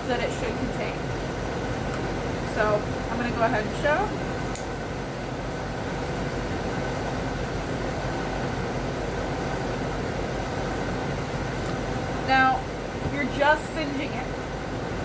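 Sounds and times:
blowtorch flame hissing: 0:00.1 - 0:15.0
blowtorch click: 0:04.5 - 0:04.8.

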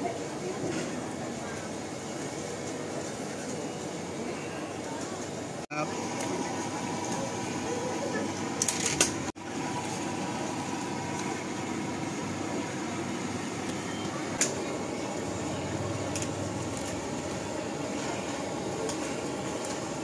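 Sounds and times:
water boiling and bubbling: 0:05.4 - 0:20.0.

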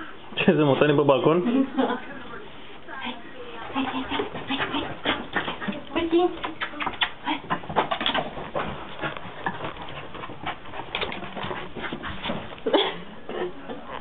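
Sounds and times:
dog chewing and snuffling: 0:04.0 - 0:14.0.

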